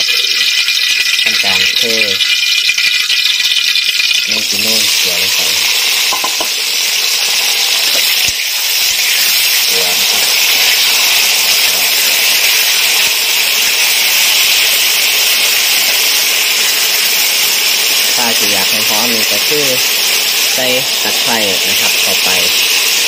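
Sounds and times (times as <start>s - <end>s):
beetles sizzling in hot oil: 0.0s - 23.0s
knock: 6.1s - 6.6s.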